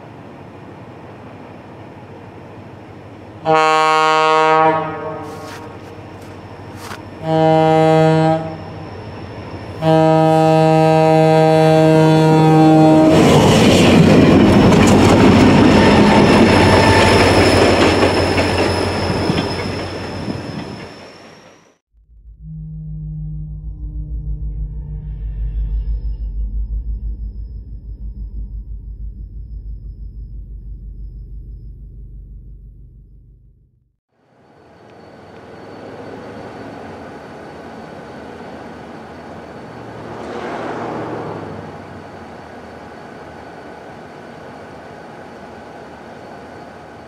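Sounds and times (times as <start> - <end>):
snow plow train rushing past: 0.0 - 21.8, 34.4 - 47.0
locomotive air horn blasts: 3.4 - 6.2, 6.8 - 8.8, 9.8 - 13.2.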